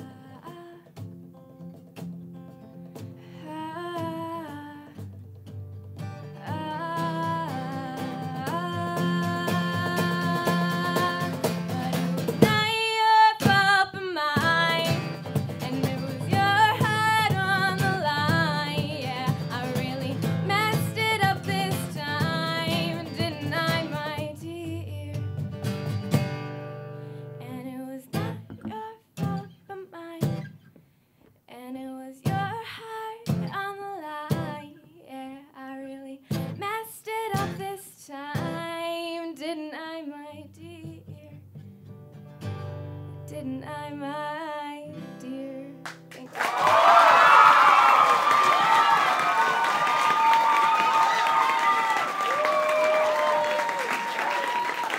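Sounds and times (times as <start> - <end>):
woman singing: 0.0 - 1.0, 3.3 - 5.2, 6.3 - 25.4, 27.4 - 30.5, 31.5 - 41.4, 43.1 - 46.6
strummed acoustic guitar: 0.0 - 29.6, 36.3 - 36.6, 40.6 - 43.6.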